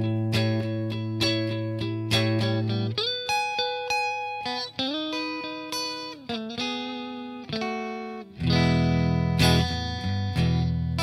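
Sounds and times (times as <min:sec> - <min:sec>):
electric guitar notes: 0:00.0 - 0:11.0
low guitar chords: 0:00.0 - 0:11.0.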